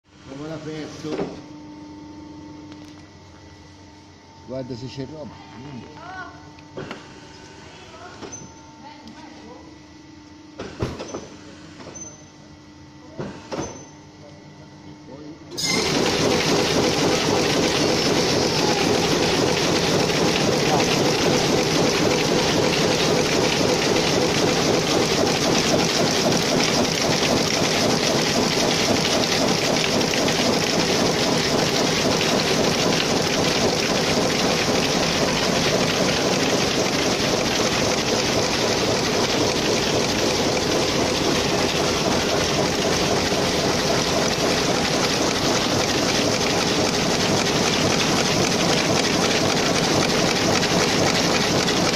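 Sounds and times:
power loom clattering: 0:15.6 - 0:51.9.

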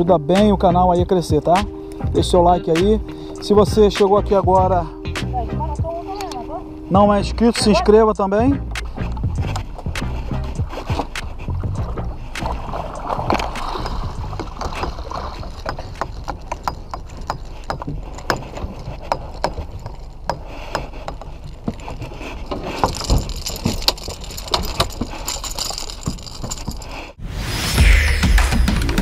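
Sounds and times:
water lapping against boat hull: 0:08.6 - 0:26.7
tackle clicking and knocking: 0:08.6 - 0:27.1.

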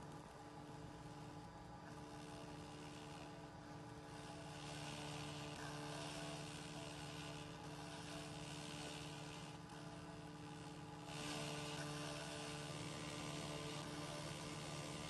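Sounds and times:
steady low hum: 0:00.0 - 0:15.0
laser cleaner hissing: 0:04.1 - 0:15.0.

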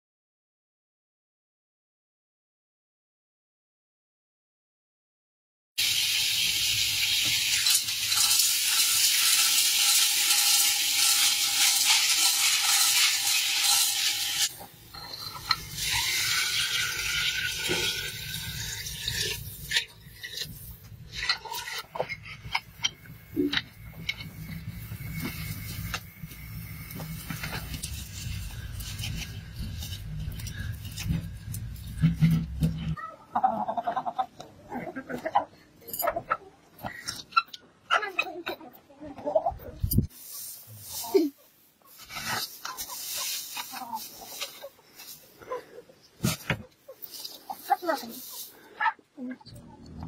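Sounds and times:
water pouring from kettle: 0:05.8 - 0:20.6
cooking pot hissing: 0:05.8 - 0:31.0.

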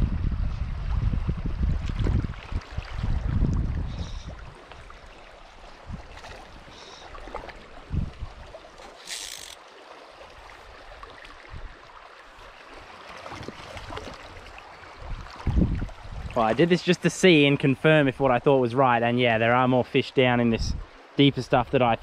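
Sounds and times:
river water rushing: 0:04.2 - 0:17.5.

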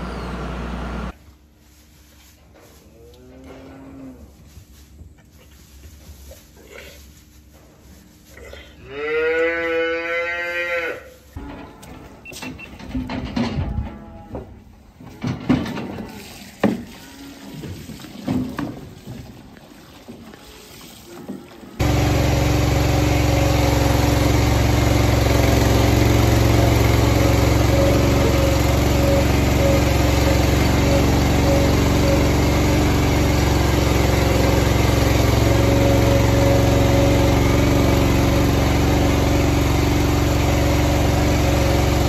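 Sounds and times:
small cart engine running: 0:21.8 - 0:42.0.

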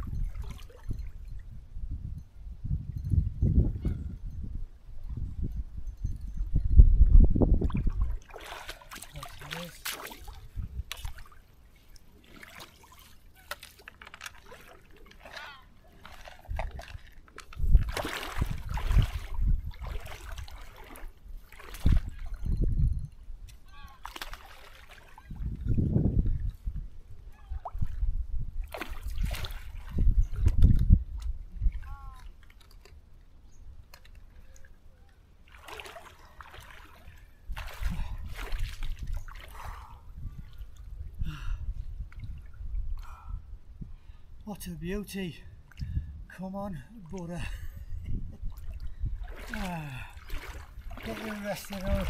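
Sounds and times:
river water sloshing around legs: 0:00.0 - 0:01.0, 0:07.6 - 0:22.5, 0:23.9 - 0:25.8, 0:27.4 - 0:41.0, 0:48.4 - 0:52.0.

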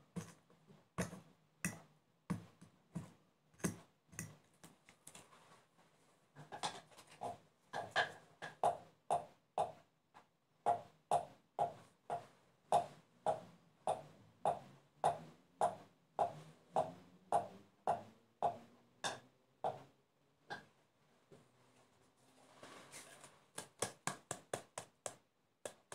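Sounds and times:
wooden pestle pounding in mortar: 0:23.6 - 0:25.9.

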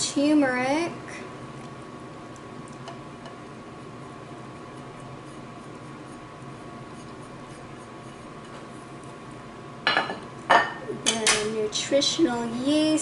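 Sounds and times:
steady low hum: 0:00.0 - 0:13.0
fingers scraping spices off plate: 0:03.2 - 0:09.5.

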